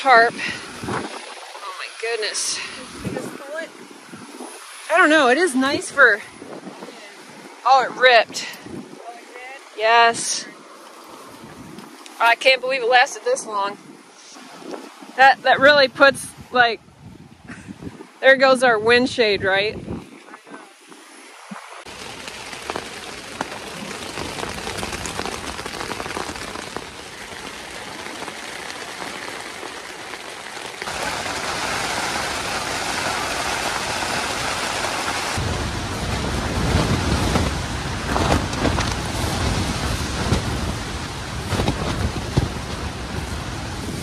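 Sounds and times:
wind gusts buffeting tent: 0.0 - 44.0
rain pattering on tent: 21.6 - 44.0
tent fabric flapping: 21.8 - 44.0.

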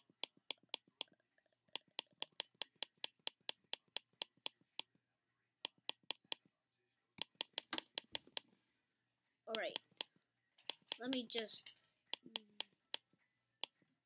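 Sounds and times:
rapid computer mouse clicks: 0.0 - 4.9, 5.6 - 6.4, 7.2 - 8.5, 9.5 - 13.0.

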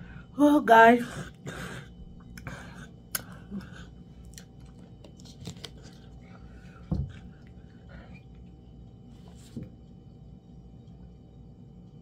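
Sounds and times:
soft mouth clicks: 3.1 - 3.4
person chewing: 3.1 - 8.2.

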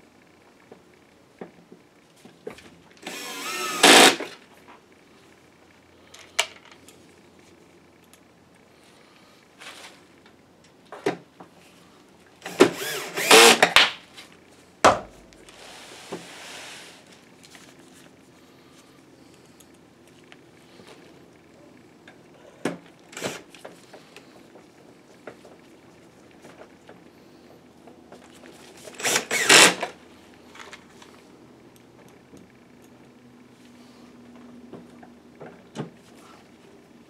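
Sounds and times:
electric screwdriver whirring: 3.0 - 4.4, 12.5 - 13.8, 23.2 - 23.4, 29.0 - 29.9.

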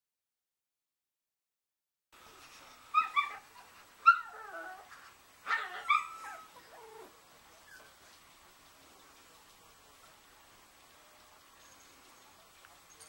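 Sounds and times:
puppies yipping and whimpering: 2.9 - 4.9, 5.5 - 8.0.

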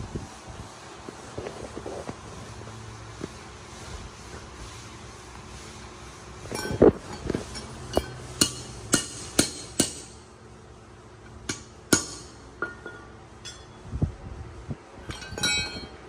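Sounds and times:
hammer striking metal: 7.9 - 10.2, 11.4 - 13.8.

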